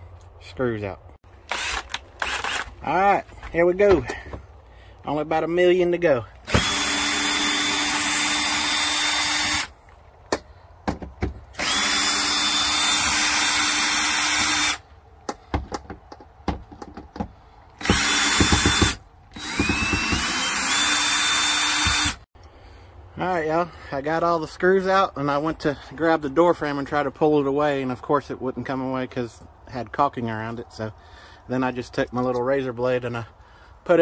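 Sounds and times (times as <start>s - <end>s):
cordless drill motor whine: 1.5s - 2.7s, 6.4s - 9.7s, 11.6s - 14.8s, 17.8s - 22.2s.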